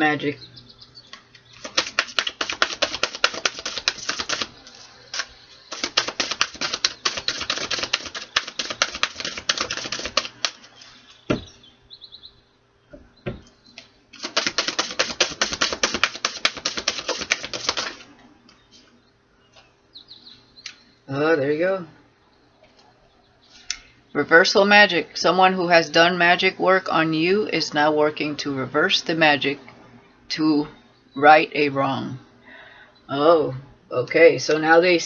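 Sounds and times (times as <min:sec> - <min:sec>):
cards being shuffled: 0:01.4 - 0:11.0, 0:14.1 - 0:18.1.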